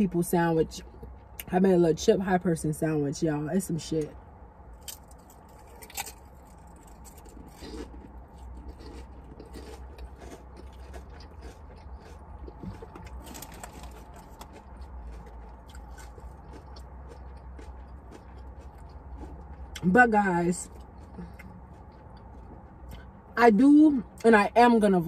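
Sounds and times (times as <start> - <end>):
steady low hum: 0.0 - 25.0
crunchy chewing: 4.7 - 19.9, 20.6 - 23.1.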